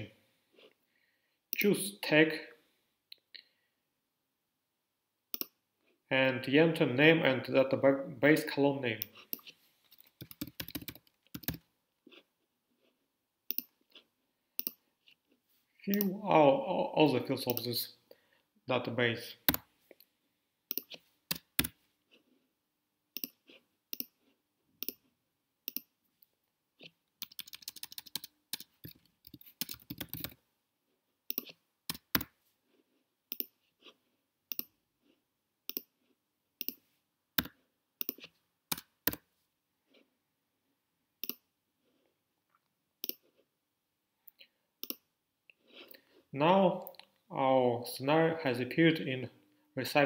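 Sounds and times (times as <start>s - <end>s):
computer mouse clicks: 5.3s - 5.6s, 9.0s - 11.6s, 13.5s - 13.8s, 14.6s - 14.8s, 20.7s - 21.8s, 23.2s - 24.2s, 24.8s - 25.0s, 25.7s - 25.9s, 27.2s - 30.4s, 31.3s - 32.3s, 33.3s - 33.6s, 34.5s - 34.7s, 35.7s - 35.9s, 36.6s - 36.8s, 37.4s - 39.2s, 41.2s - 41.4s, 43.0s - 43.2s, 44.8s - 45.0s
computer keyboard typing: 9.3s - 11.6s, 20.7s - 21.8s, 27.2s - 30.4s, 31.3s - 32.3s.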